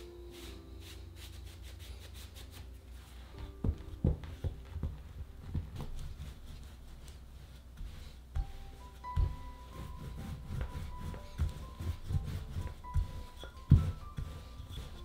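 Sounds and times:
brush sweeping dough: 0.0s - 15.0s
rolling pin knocking on dough: 3.6s - 7.2s, 7.8s - 15.0s.

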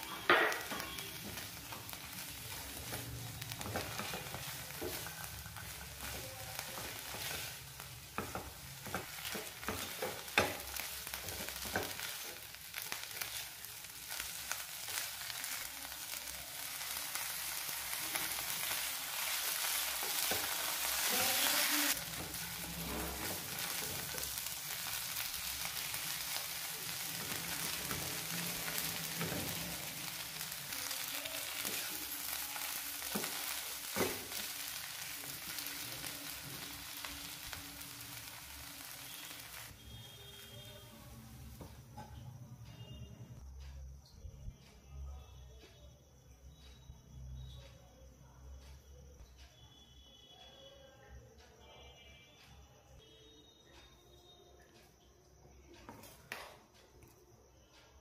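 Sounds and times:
food sizzling in frying pan: 0.0s - 42.0s.

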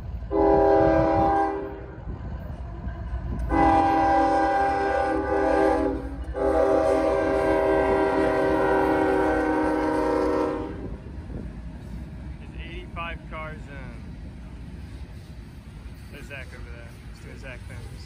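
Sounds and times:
train rumbling past: 0.0s - 18.0s
locomotive air horn: 0.3s - 1.9s, 3.4s - 11.0s.

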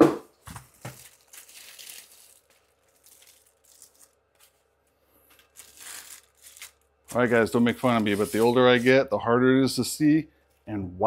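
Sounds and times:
packaging rustling and crinkling: 0.3s - 8.9s.

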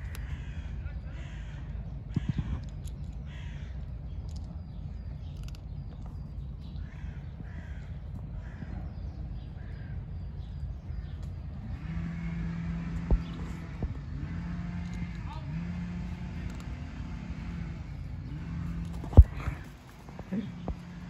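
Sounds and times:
crows cawing: 0.0s - 4.4s, 6.8s - 10.0s
low background rumble: 0.0s - 21.0s.

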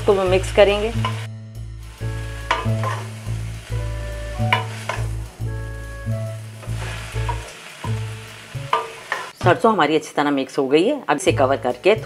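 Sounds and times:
greens sizzling in a pan: 0.0s - 10.0s
background music with low notes: 0.0s - 12.0s.

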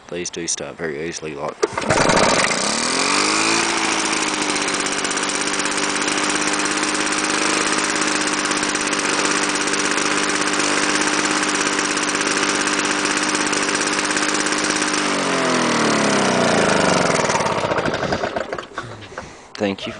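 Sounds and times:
lawn mower engine running: 1.5s - 19.6s.

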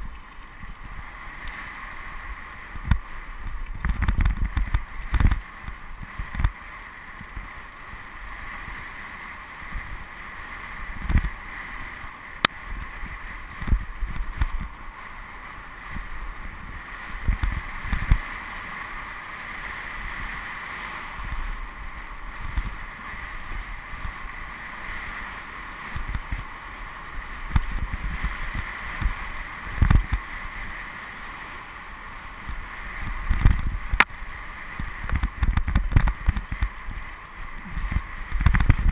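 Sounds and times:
dull low thumps of bike: 0.0s - 8.9s, 10.9s - 11.5s, 12.4s - 15.1s, 15.8s - 18.3s, 21.2s - 24.3s, 25.9s - 26.6s, 27.2s - 30.3s, 32.4s - 38.9s
bike tyre noise on dirt: 0.0s - 38.9s.

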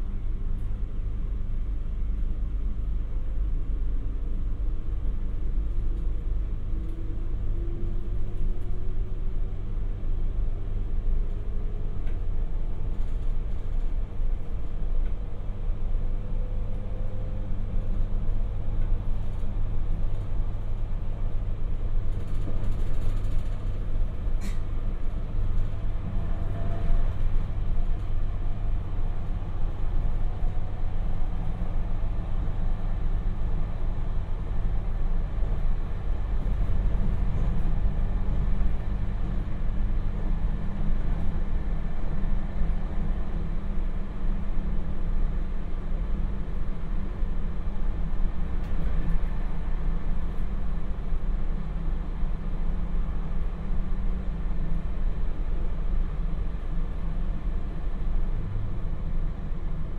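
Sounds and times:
train wheels and motors rumbling: 0.0s - 59.9s.

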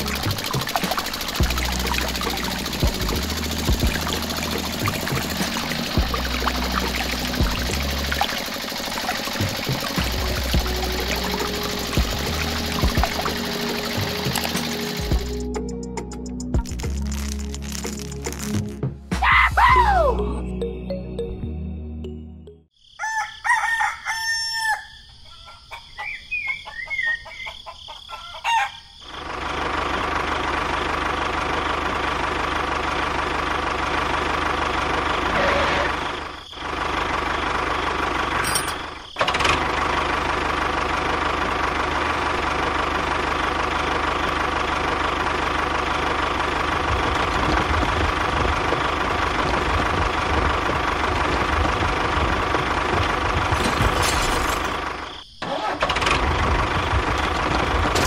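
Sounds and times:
steady engine running: 0.0s - 16.2s, 29.1s - 58.0s
rooster crowing: 22.9s - 28.9s.

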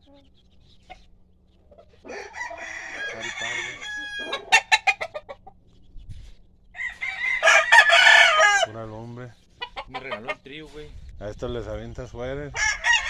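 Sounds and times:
rooster clucking: 0.0s - 5.7s, 6.7s - 8.7s, 9.5s - 10.7s
rooster crowing: 2.0s - 5.0s, 6.8s - 8.8s, 12.6s - 13.0s.

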